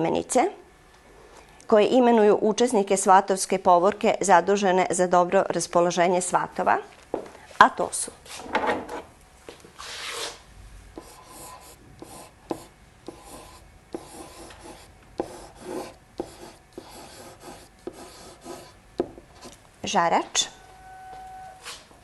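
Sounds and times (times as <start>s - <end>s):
pen scratching on whiteboard: 11.0s - 18.8s.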